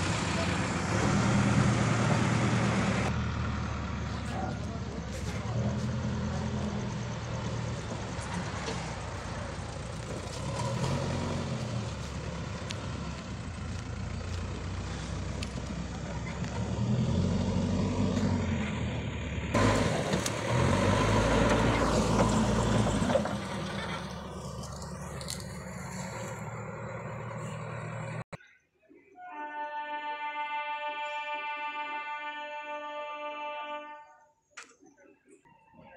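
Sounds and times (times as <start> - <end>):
diesel engine revving: 0.0 - 28.4.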